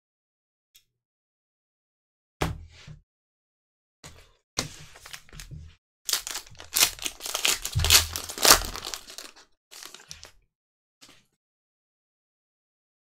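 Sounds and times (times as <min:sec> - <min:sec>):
foil wrapper tearing and crinkling: 0:06.1 - 0:10.3.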